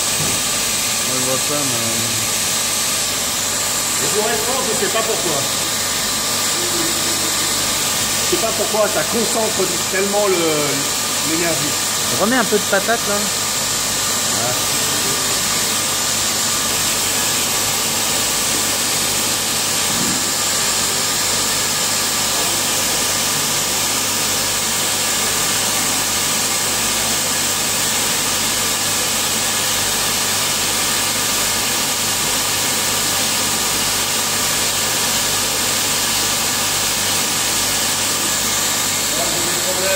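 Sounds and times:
low machine hum: 0:00.0 - 0:21.4
steady whining tones: 0:01.0 - 0:17.2.

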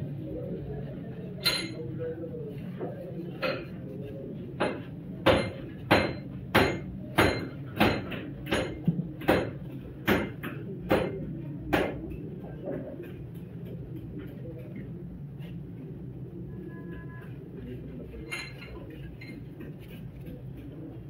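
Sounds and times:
hammer striking metal: 0:04.6 - 0:12.0.

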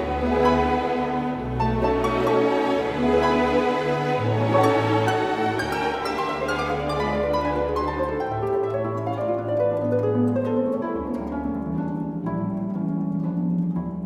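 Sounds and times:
instrumental music with plucked strings: 0:00.0 - 0:14.0.

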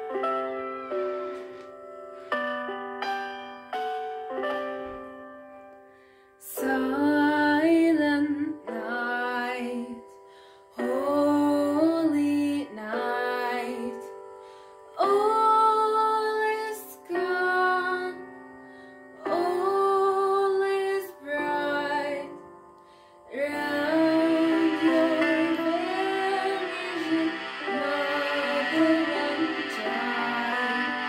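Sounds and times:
soft instrumental backing: 0:00.0 - 0:07.6, 0:21.4 - 0:31.0
woman singing slow song: 0:06.4 - 0:10.2, 0:10.8 - 0:14.2, 0:14.9 - 0:18.3, 0:19.2 - 0:22.6, 0:23.3 - 0:31.0.

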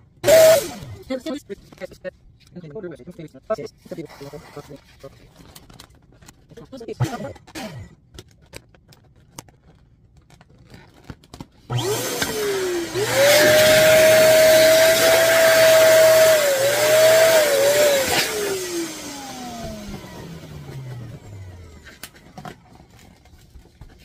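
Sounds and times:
electric balloon pump motor whine: 0:00.2 - 0:01.0, 0:11.7 - 0:22.5.

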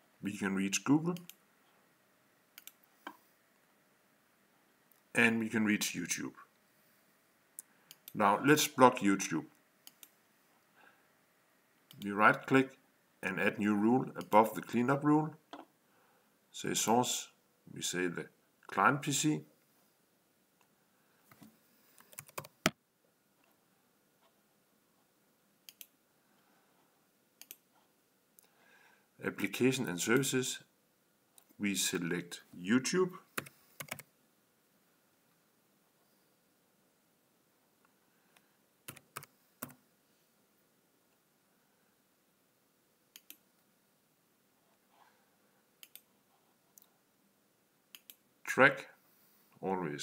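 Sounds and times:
computer mouse clicks: 0:02.6 - 0:03.2, 0:09.8 - 0:10.2, 0:21.3 - 0:22.8, 0:25.6 - 0:26.0, 0:27.4 - 0:27.6, 0:33.4 - 0:34.1, 0:43.1 - 0:43.4, 0:45.8 - 0:46.1, 0:47.9 - 0:48.2
keyboard keystrokes: 0:22.1 - 0:22.8
mouse clicks: 0:43.1 - 0:43.4, 0:45.8 - 0:46.1, 0:47.9 - 0:48.2.

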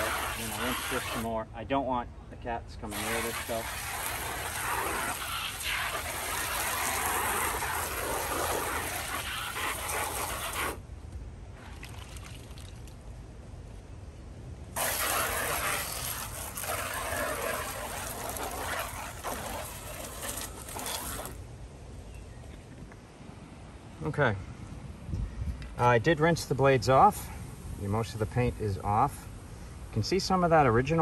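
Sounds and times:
water spray hissing on metal: 0:00.0 - 0:01.3, 0:02.9 - 0:10.8, 0:14.8 - 0:21.4.

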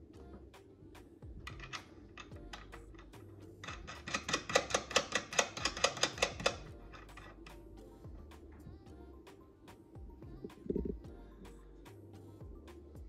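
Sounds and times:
metal nuts clicking: 0:01.4 - 0:07.6.

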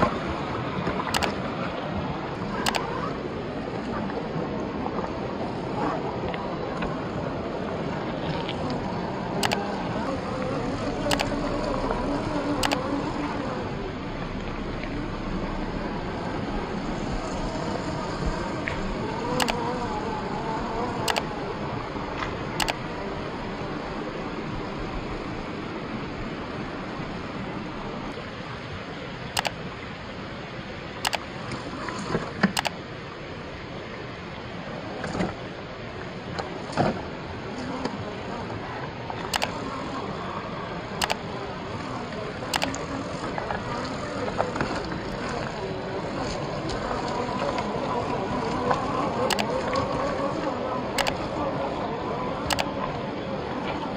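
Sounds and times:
steady background rush: 0:00.0 - 0:34.0, 0:34.6 - 0:53.9
sharp click: 0:01.1 - 0:01.4, 0:02.6 - 0:02.9, 0:09.4 - 0:09.6, 0:11.0 - 0:11.7, 0:12.6 - 0:12.8, 0:19.4 - 0:19.6, 0:22.6 - 0:22.8, 0:29.4 - 0:29.6, 0:31.0 - 0:31.3, 0:32.4 - 0:32.8, 0:39.3 - 0:39.6, 0:42.5 - 0:42.8, 0:49.3 - 0:49.5, 0:51.0 - 0:51.2, 0:52.5 - 0:52.7
small electric motor whining: 0:09.4 - 0:13.7.

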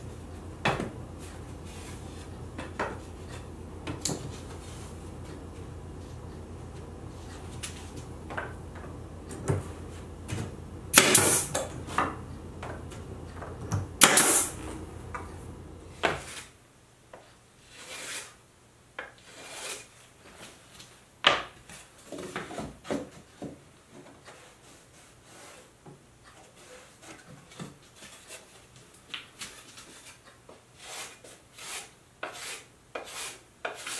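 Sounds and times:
pneumatic stapler shots: 0:10.9 - 0:11.6, 0:14.0 - 0:14.6.

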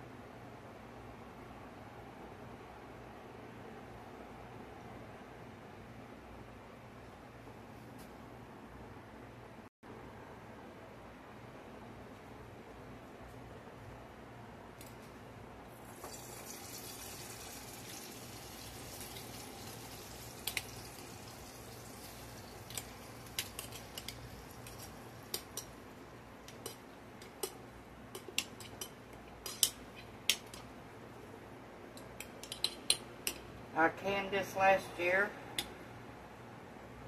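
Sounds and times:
pot boiling: 0:15.7 - 0:30.6
sauerkraut sizzling in a skillet: 0:15.9 - 0:26.0.

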